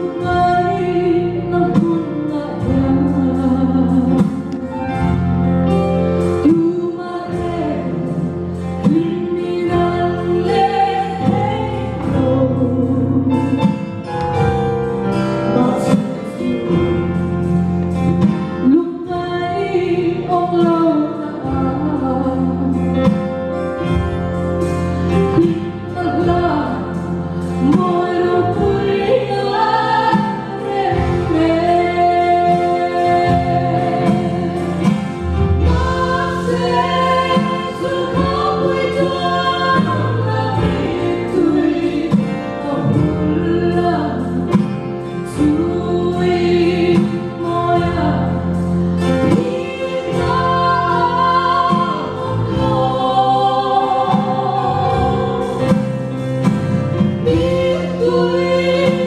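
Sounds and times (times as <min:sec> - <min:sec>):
woman singing into microphone: 0:00.0 - 0:05.0, 0:06.3 - 0:14.1, 0:18.2 - 0:23.9, 0:25.1 - 0:55.9, 0:57.2 - 0:59.0
instrumental accompaniment: 0:00.0 - 0:59.0.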